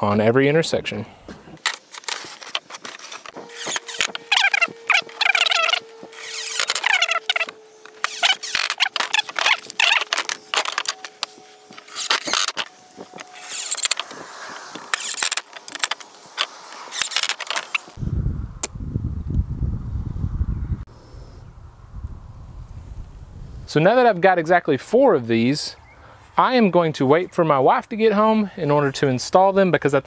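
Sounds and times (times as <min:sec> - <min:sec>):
impact driver hammering screws: 0:01.6 - 0:17.9
wind rumble on microphone: 0:17.9 - 0:23.7.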